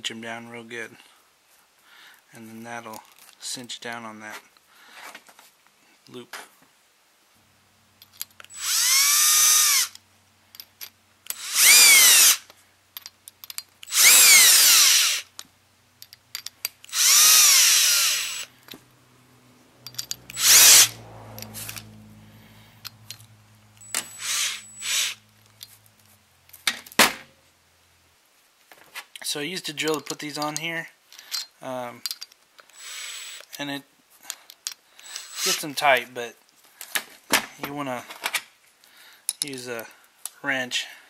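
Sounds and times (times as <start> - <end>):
cordless drill whining: 8.4 - 10.0, 11.3 - 12.5, 13.8 - 15.4, 16.8 - 18.7, 20.0 - 21.9, 23.8 - 25.3, 32.7 - 33.5, 35.0 - 35.8.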